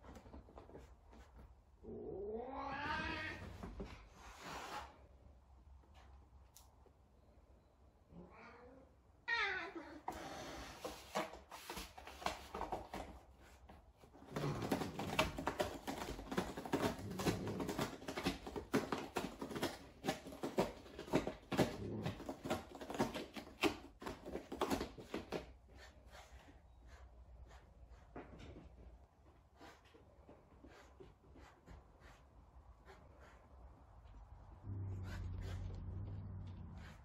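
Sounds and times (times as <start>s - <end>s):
cat scratching cardboard: 10.1s - 37.0s.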